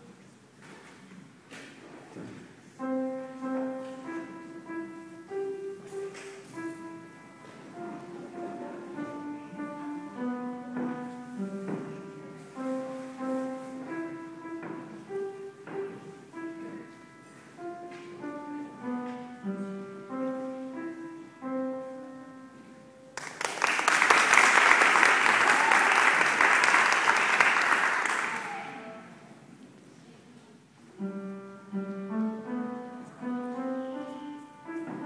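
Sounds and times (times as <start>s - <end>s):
upright piano playing: 2.8s - 25.4s, 31.0s - 35.0s
applause: 23.2s - 28.8s.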